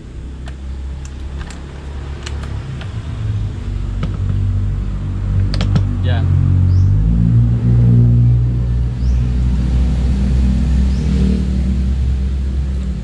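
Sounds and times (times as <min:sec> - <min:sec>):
plastic clicks and knocks: 0:05.5 - 0:05.9.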